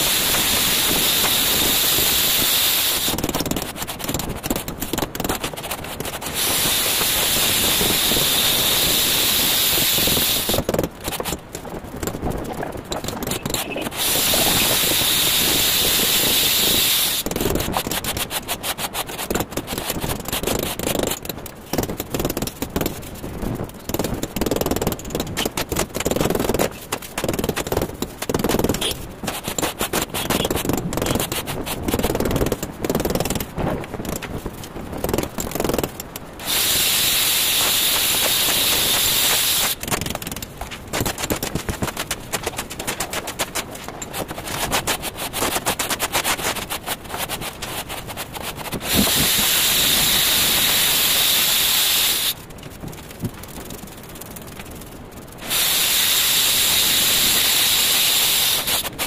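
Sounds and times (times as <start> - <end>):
loud steady hiss: 0.0 - 3.3, 6.1 - 10.7, 13.2 - 18.8, 36.4 - 39.8, 42.6 - 52.4, 55.4 - 59.0
trowel scraping mortar: 12.9 - 16.1, 16.9 - 21.2, 26.5 - 32.3, 40.7 - 50.1.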